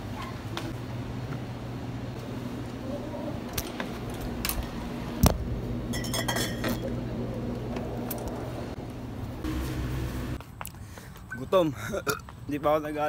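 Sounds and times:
steady low hum: 0.0 - 10.4
glass bottles clinking: 5.9 - 6.8.

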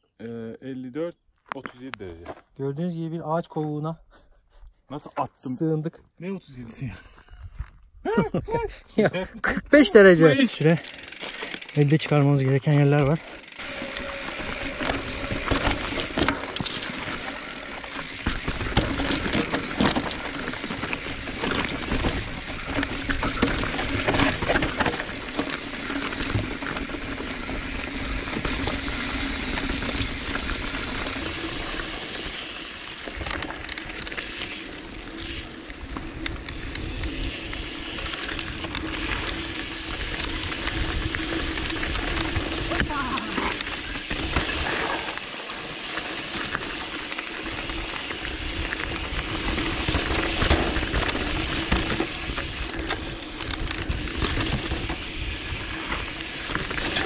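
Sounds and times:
bike clattering over bumps: 10.8 - 32.0, 32.9 - 57.0
tyres rumbling over dirt and gravel: 11.2 - 57.0.

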